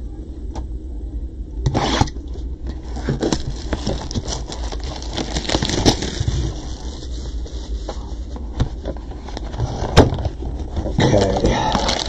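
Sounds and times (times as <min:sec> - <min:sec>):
plastic wrap crinkling and tearing: 0:02.8 - 0:08.4, 0:09.1 - 0:12.0.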